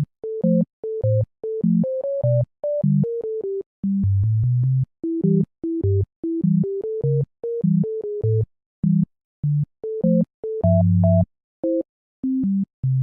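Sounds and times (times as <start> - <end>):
bass notes: 10.6 - 11.2.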